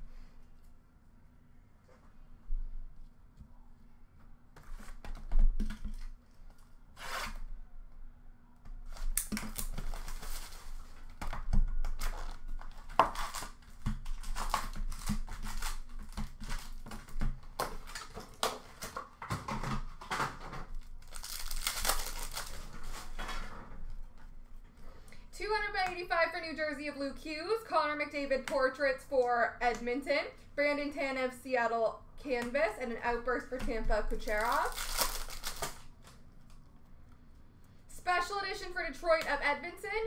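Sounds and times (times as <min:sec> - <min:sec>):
card wrappers tearing and crinkling: 0:09.0 - 0:11.0, 0:12.0 - 0:17.1, 0:20.7 - 0:23.2, 0:34.1 - 0:36.2.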